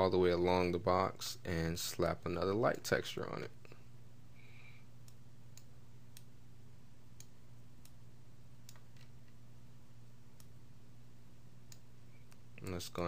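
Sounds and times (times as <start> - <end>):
low electrical hum: 0.0 - 13.0
computer mouse clicks: 7.2 - 8.0, 8.6 - 9.4, 11.7 - 12.4.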